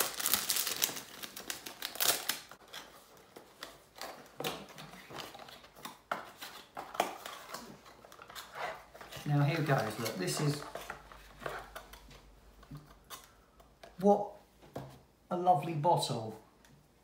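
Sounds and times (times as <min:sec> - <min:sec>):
wrapping crinkling: 0:00.0 - 0:04.2, 0:06.5 - 0:12.1.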